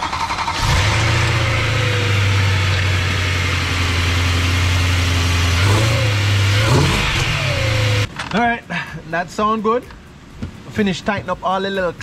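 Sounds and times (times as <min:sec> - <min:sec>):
car engine idling: 0:00.0 - 0:08.2.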